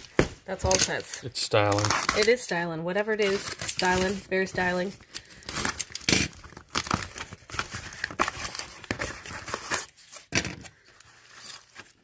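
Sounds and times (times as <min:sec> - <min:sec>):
packaging crinkling and rustling: 0:03.2 - 0:12.0.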